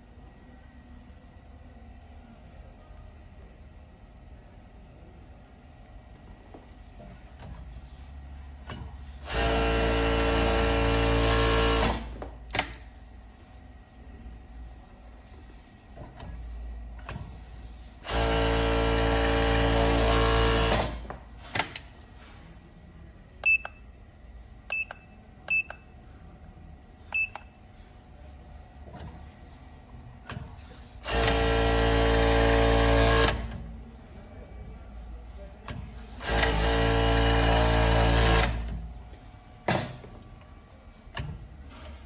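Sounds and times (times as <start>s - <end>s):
overlock sewing machine running: 9.2s - 12.2s, 18.0s - 21.0s, 31.0s - 33.6s, 36.2s - 38.7s.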